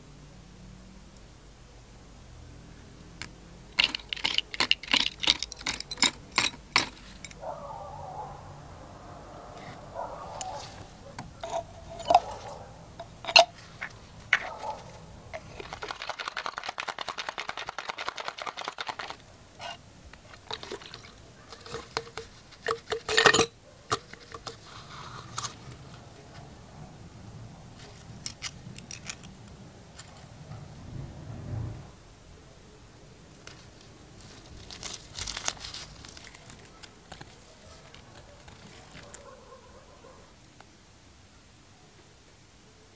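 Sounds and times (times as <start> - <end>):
liquid being poured: 3.8 - 7.3, 20.3 - 23.4
plastic cups and bottle clicking: 3.8 - 7.4, 11.3 - 14.6, 15.4 - 24.7.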